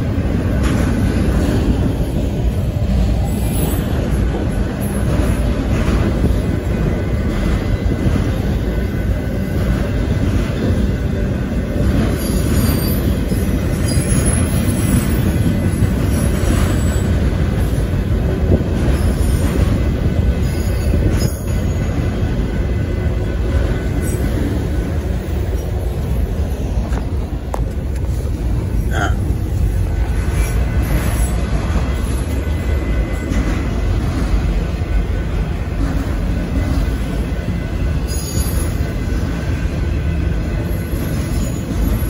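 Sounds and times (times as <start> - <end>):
freight train wheels rumbling on rail: 0.0 - 42.0
high wheel squeal: 12.1 - 15.4, 36.7 - 39.2.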